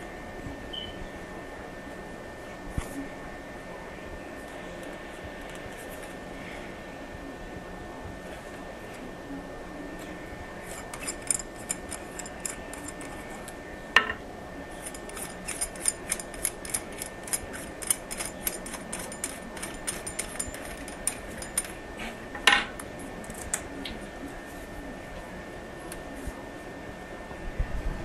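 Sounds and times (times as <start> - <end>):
metal parts clicking and clinking: 10.7 - 13.2, 14.8 - 21.8.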